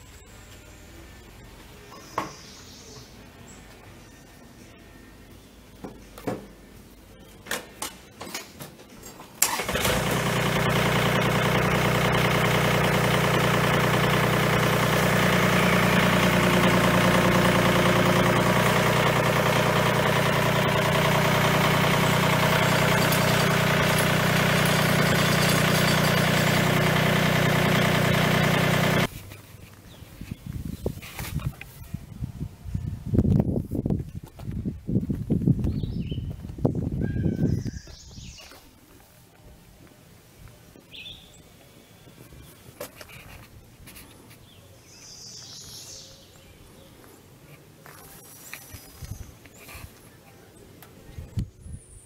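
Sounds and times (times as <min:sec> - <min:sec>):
tractor diesel engine running: 0:09.4 - 0:29.2.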